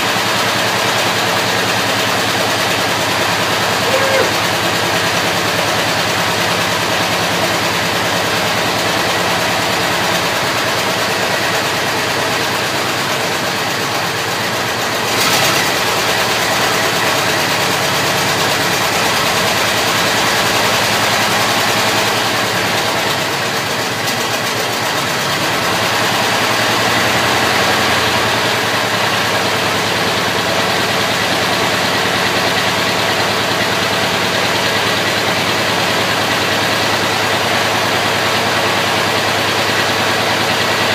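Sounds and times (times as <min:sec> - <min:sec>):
car engine idling: 0:00.0 - 0:40.9
engine knock: 0:00.0 - 0:40.9.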